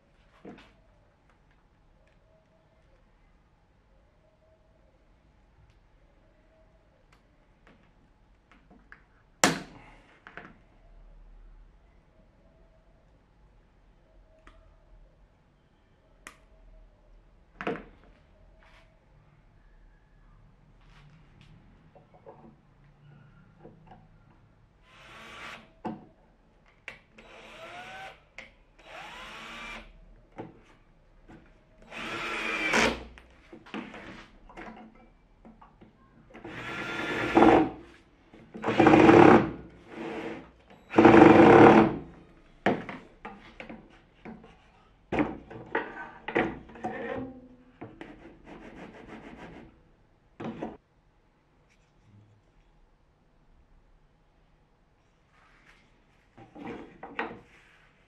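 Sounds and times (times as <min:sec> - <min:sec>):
cordless drill driving screws: 0:24.9 - 0:25.7, 0:27.2 - 0:28.2, 0:28.8 - 0:29.9, 0:31.8 - 0:33.0, 0:36.5 - 0:37.7.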